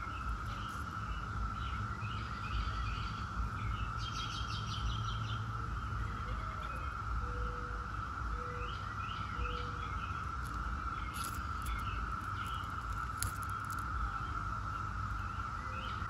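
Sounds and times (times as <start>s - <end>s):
birds chirping: 0.0s - 7.6s, 8.3s - 16.0s
cicadas singing in chorus: 0.0s - 16.0s.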